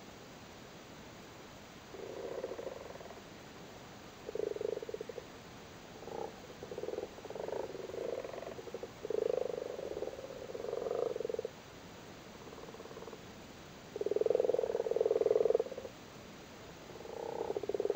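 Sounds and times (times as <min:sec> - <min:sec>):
frogs croaking in chorus: 0:01.9 - 0:03.3, 0:04.2 - 0:05.3, 0:05.9 - 0:11.6, 0:12.4 - 0:13.2, 0:13.9 - 0:15.9, 0:16.9 - 0:17.9.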